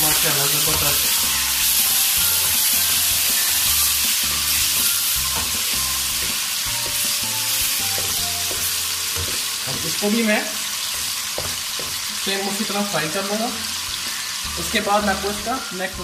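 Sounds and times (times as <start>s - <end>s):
chicken sizzling in hot oil: 0.0s - 16.0s
spoon stirring in pan: 4.3s - 9.9s.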